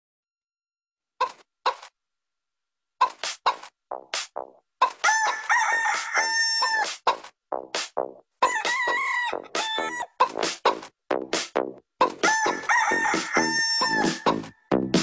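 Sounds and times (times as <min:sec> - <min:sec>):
chicken clucking: 0:01.2 - 0:01.9, 0:03.0 - 0:03.7, 0:04.8 - 0:07.3, 0:08.4 - 0:10.9, 0:12.0 - 0:14.6
chicken long crowing call: 0:05.0 - 0:06.9, 0:08.4 - 0:10.2, 0:12.2 - 0:14.7.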